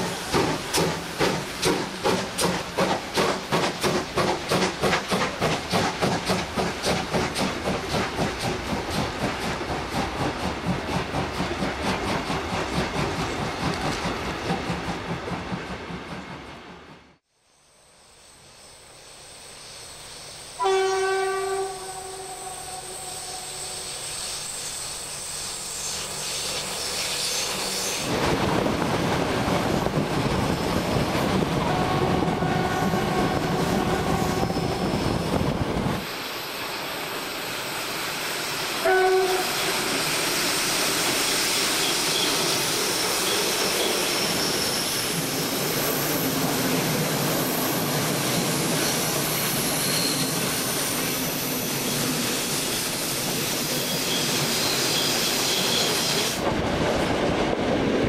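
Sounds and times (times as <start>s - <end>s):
steam locomotive exhaust beat: 0.0s - 17.1s
train wheels on rails: 0.0s - 17.2s, 21.2s - 58.0s
diesel locomotive engine: 0.0s - 58.0s
train horn blast: 20.6s - 23.9s, 31.6s - 34.9s, 38.8s - 39.9s.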